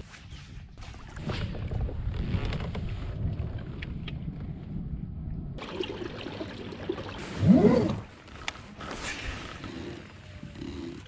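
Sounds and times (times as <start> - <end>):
wind rumbling on microphone: 0.0 - 5.6.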